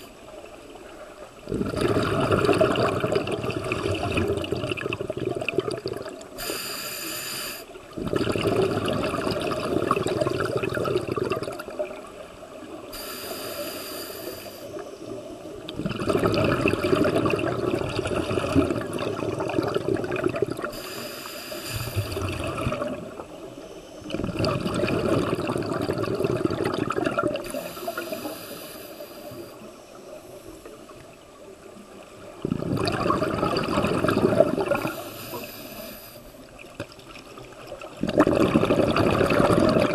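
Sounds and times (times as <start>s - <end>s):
exhaled bubbles burbling: 1.4s - 6.4s, 7.9s - 12.9s, 14.7s - 20.8s, 21.8s - 23.4s, 24.0s - 28.1s, 32.2s - 35.4s, 36.5s - 39.9s
diver breathing through regulator: 6.4s - 7.8s, 12.9s - 14.8s, 20.6s - 22.5s, 27.4s - 30.8s, 34.6s - 36.4s.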